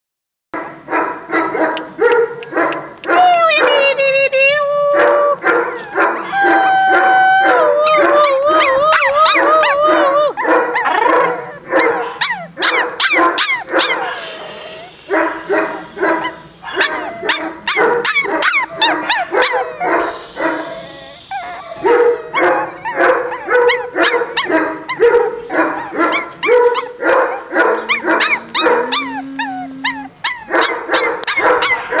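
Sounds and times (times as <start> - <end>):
puppies yapping: 5.4 - 32.0
steady low tone: 27.8 - 30.1.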